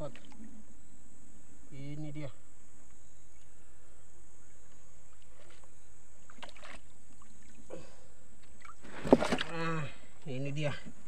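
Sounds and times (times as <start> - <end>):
fish splashing at surface: 8.6 - 9.5.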